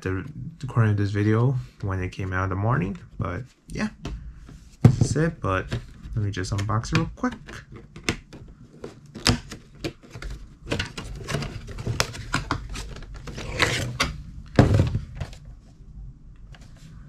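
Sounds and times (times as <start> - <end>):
plastic clicks and scrapes: 5.6 - 14.2.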